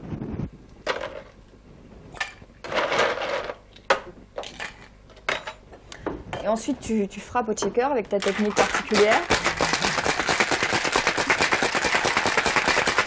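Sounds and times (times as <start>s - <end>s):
ice rattling in metal shaker: 8.2s - 13.0s.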